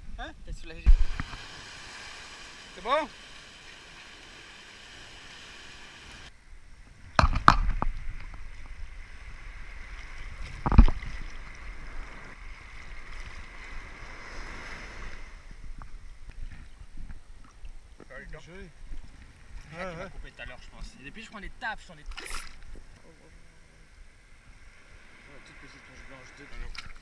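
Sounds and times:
seawater washing: 0.7 - 6.4.

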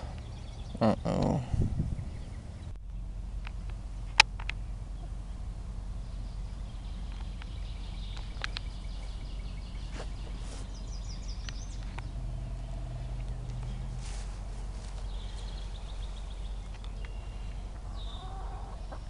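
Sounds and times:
low outdoor rumble: 0.0 - 19.0
hens pecking and scratching: 7.1 - 19.0.

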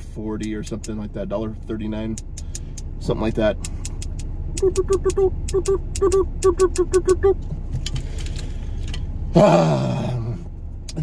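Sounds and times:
car engine idling: 0.0 - 11.0.

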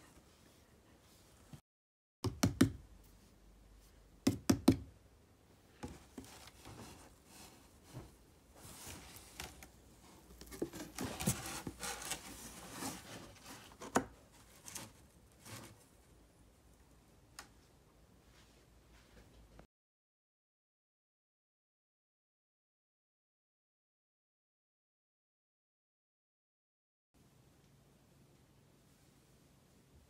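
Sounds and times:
paws scratching cardboard: 8.8 - 15.9
dog bumping cardboard box: 10.5 - 14.1.

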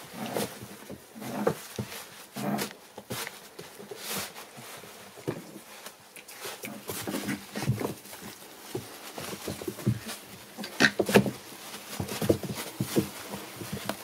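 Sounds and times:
scratches and knocks: 6.5 - 14.0.

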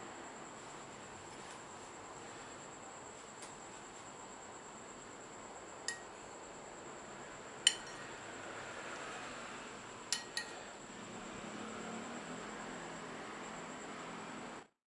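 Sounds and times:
metal spoon clinking on ceramic plate: 7.7 - 8.1, 10.1 - 10.6.

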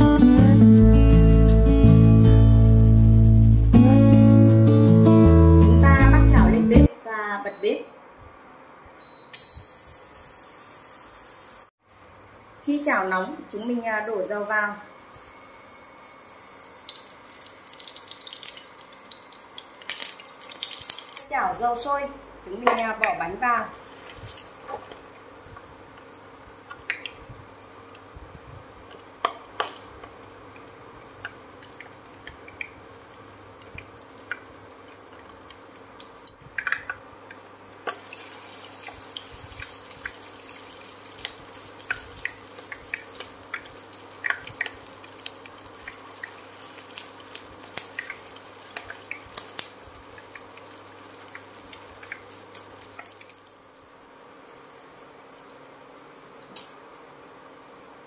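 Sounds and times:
patties frying in oil: 12.6 - 54.8.

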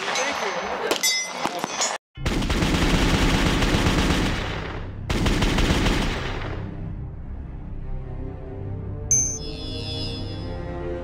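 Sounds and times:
automatic gunfire: 2.2 - 6.6.

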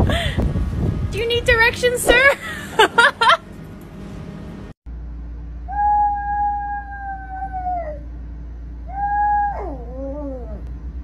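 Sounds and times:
low steady hum: 0.0 - 11.0
small dog howling: 5.7 - 8.1, 8.9 - 10.7.

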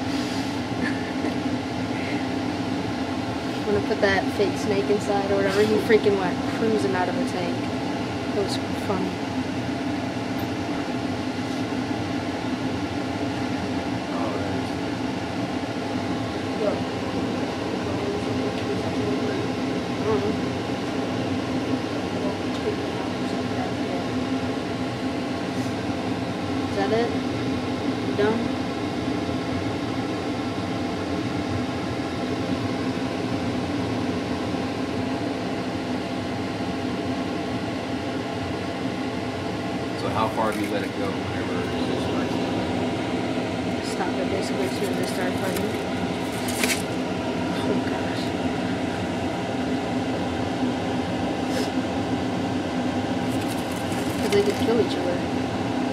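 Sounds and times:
steady mechanical hum: 0.0 - 55.9.

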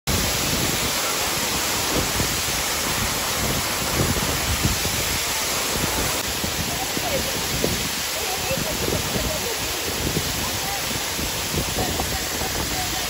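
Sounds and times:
waterfall rushing onto rocks: 0.1 - 13.0.

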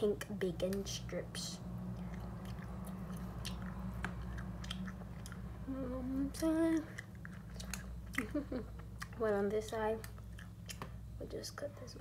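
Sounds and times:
steady low hum: 0.0 - 12.0
person humming mm-hm: 5.6 - 6.9.

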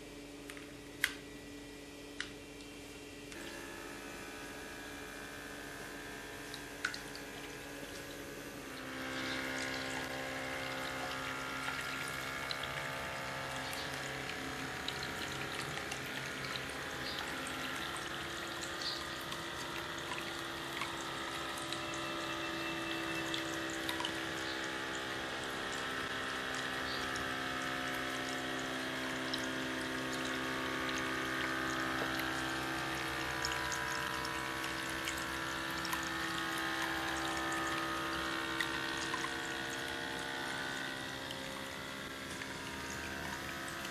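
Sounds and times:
fountain water trickling and splashing: 8.8 - 43.9.

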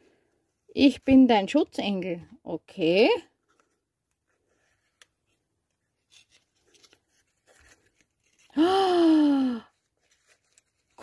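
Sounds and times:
tissue paper crinkling: 5.8 - 8.6, 9.6 - 11.0.

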